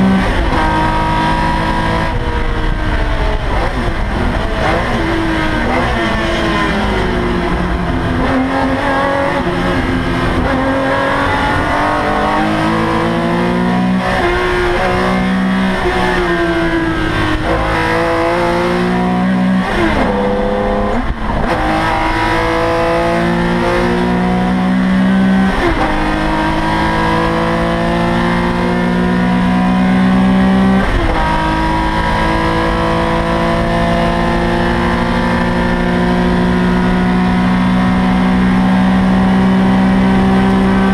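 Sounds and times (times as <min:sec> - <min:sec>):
racing car engine at high revs: 0:00.0 - 0:40.9.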